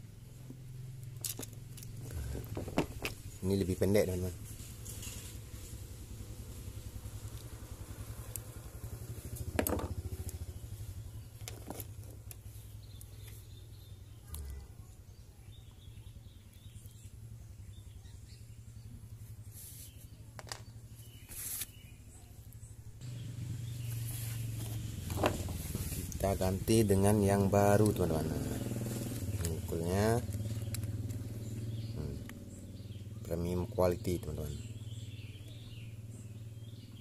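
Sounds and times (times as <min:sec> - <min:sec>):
small parts clicking and tapping: 0:01.0 - 0:03.2, 0:11.4 - 0:12.4.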